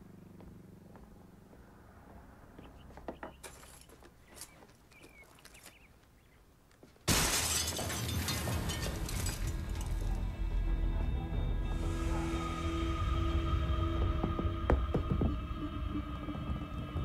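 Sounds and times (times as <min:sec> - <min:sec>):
window glass shattering: 0:07.1 - 0:10.2.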